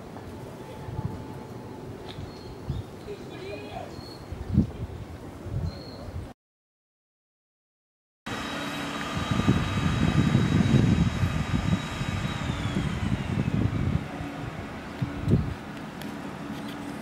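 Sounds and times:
wind buffeting microphone: 0:00.0 - 0:06.3, 0:08.9 - 0:16.0
chairlift mechanical whine: 0:08.3 - 0:17.0.

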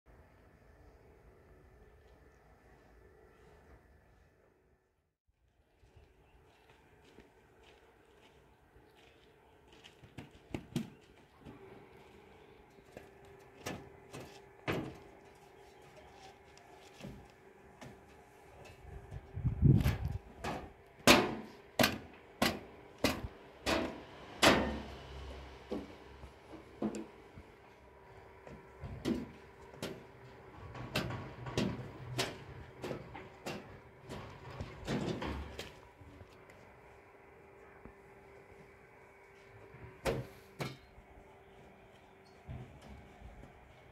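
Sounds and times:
knocks on sheet-metal bodywork: 0:20.5 - 0:24.8.

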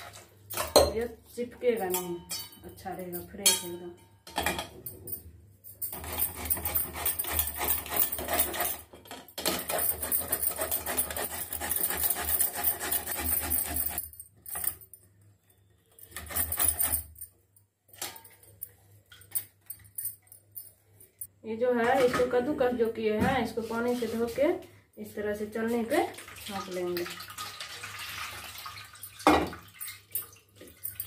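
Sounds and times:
metal grater scraping against bowl: 0:05.9 - 0:14.0.

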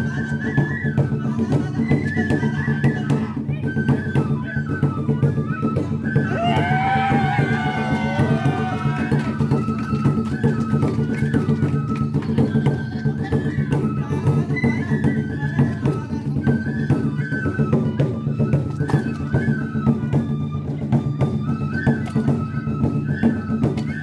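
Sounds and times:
transverse flute melody: 0:00.0 - 0:24.0
rapid taiko drumming: 0:06.2 - 0:21.4.

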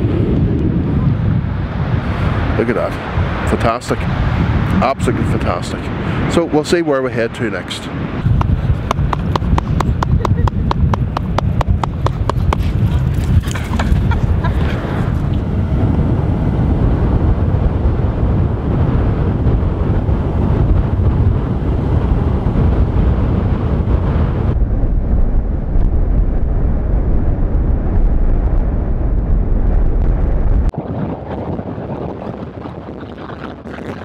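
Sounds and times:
road noise: 0:00.0 - 0:17.9
wind buffeting microphone: 0:00.0 - 0:34.0.

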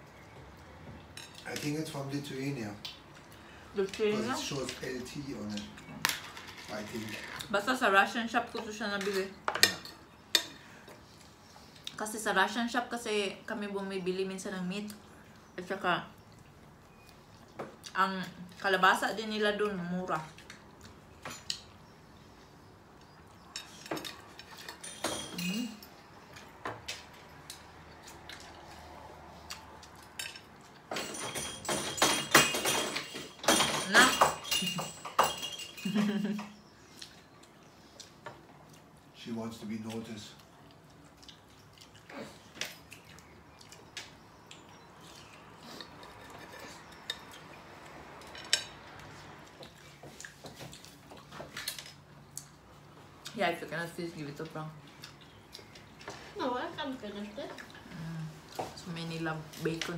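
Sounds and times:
dishes and cutlery clinking: 0:01.0 - 0:02.0, 0:08.6 - 0:11.0, 0:23.3 - 0:27.6, 0:29.9 - 0:36.6, 0:45.7 - 0:52.0.

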